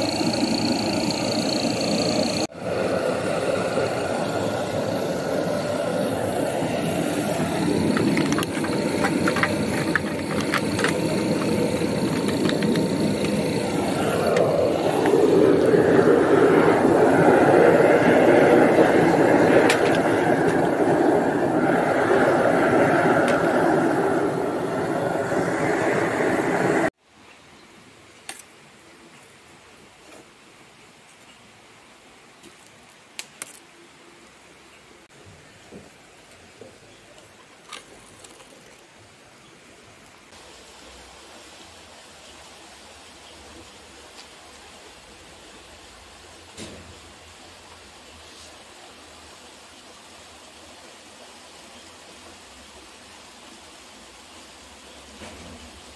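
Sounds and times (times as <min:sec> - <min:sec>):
furnace burner flame roaring: 0:00.0 - 0:27.0.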